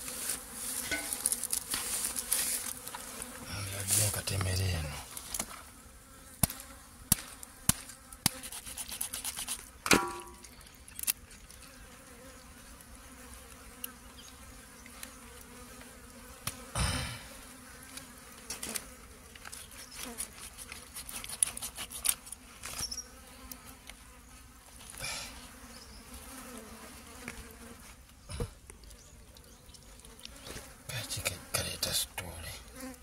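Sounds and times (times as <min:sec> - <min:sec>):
insects buzzing: 0:00.0 - 0:33.0
knife scraping raw fish: 0:08.3 - 0:09.7, 0:20.0 - 0:22.4.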